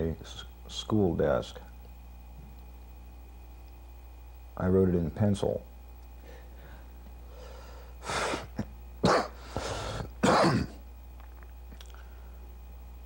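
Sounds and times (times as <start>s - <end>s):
man coughing: 8.2s - 9.4s, 10.0s - 10.8s.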